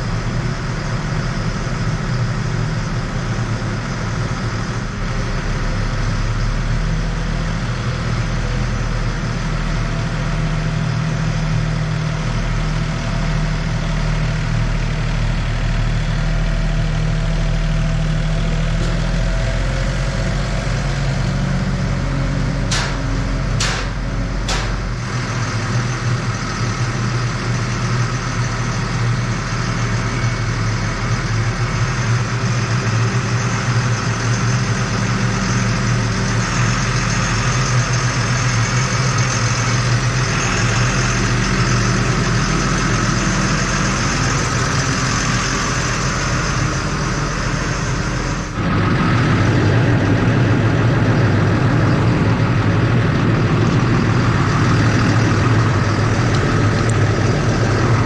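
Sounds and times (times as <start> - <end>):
diesel engine idling: 0.0 - 58.0
sharp clicks or knocks: 22.7 - 24.8.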